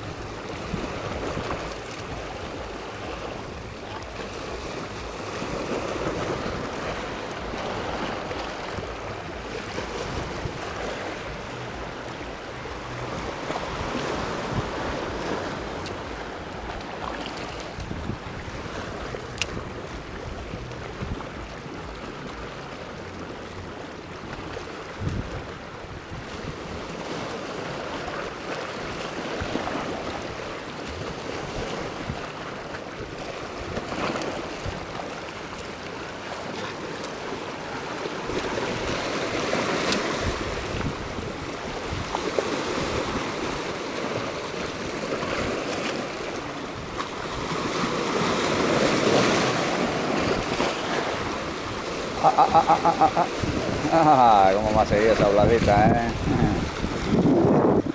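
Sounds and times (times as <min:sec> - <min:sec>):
small waves splashing on rocks: 0:26.4 - 0:57.9.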